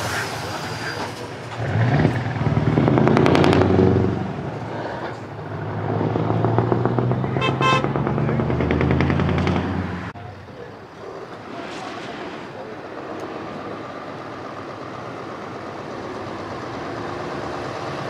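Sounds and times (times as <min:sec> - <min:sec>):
diesel truck engine pulling away: 0:00.0 - 0:18.0
truck horn toot: 0:07.3 - 0:08.0.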